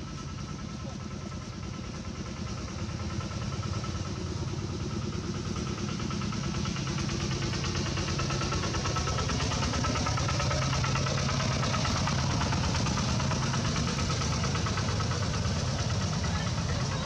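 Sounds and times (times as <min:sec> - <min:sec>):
engine idling: 0:00.0 - 0:17.0.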